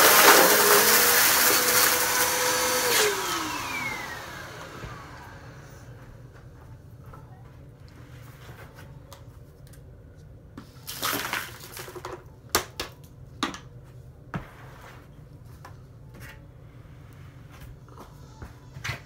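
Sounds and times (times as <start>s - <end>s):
debris pouring into plastic tub: 0.0s - 2.0s, 10.9s - 12.0s.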